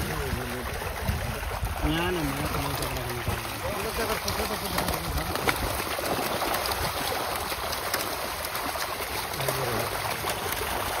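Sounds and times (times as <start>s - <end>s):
light water splashes: 0.0s - 11.0s
water flowing: 0.0s - 11.0s.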